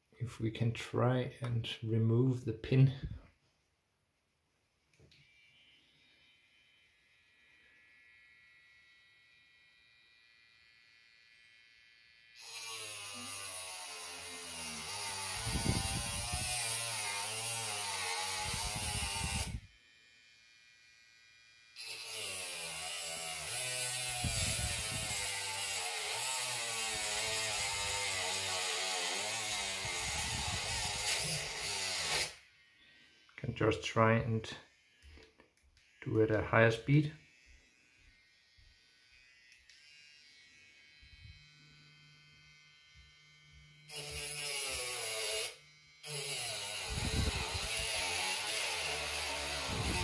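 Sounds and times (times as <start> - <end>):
grinding pen on metal pin: 12.3 - 19.7, 21.7 - 32.5, 43.1 - 50.0.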